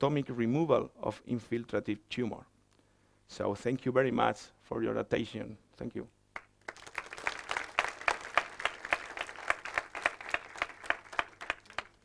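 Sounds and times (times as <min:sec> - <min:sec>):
audience applauding: 0:06.4 - 0:12.0.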